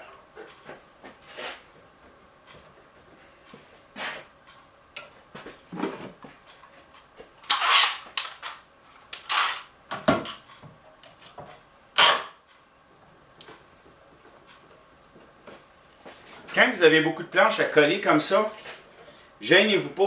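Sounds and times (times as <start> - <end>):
tools scraping and clicking: 7.4 - 9.7.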